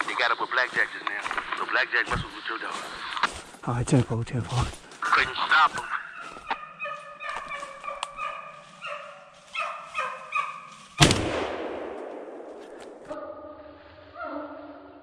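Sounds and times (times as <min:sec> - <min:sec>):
hounds baying: 0:05.0 - 0:11.0
loud gunshot: 0:11.0 - 0:12.5.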